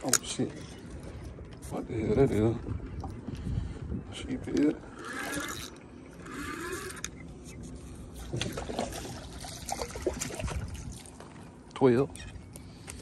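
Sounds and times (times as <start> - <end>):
fish splashing in water: 8.3 - 11.2.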